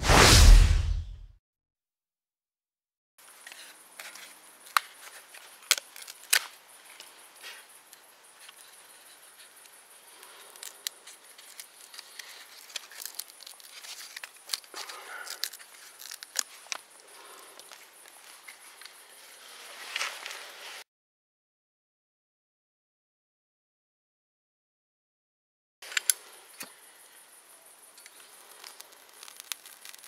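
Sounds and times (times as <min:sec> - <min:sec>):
tinder crinkling: 0:03.4 - 0:20.8, 0:28.0 - 0:30.0
dry twigs snapping: 0:11.4 - 0:16.8, 0:28.0 - 0:30.0.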